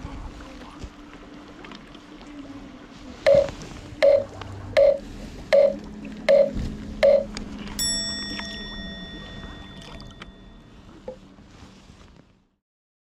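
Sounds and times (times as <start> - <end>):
short electronic beeps: 3.3 - 7.3.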